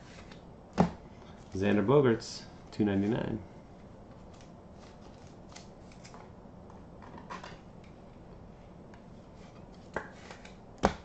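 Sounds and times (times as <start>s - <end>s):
cards rustling and ticking: 4.1s - 6.2s.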